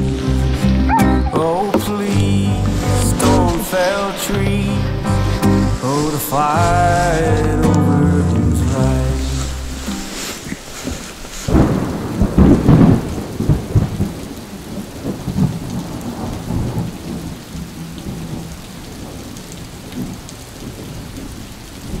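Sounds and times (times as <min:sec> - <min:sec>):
rain falling: 0:00.0 - 0:22.0
thunder rolling: 0:11.5 - 0:21.1.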